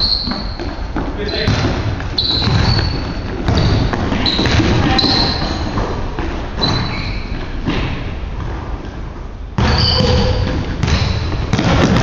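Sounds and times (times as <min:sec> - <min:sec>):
sneakers squeaking: 0:00.0 - 0:12.0
basketball thudding on wooden floor: 0:01.5 - 0:05.2.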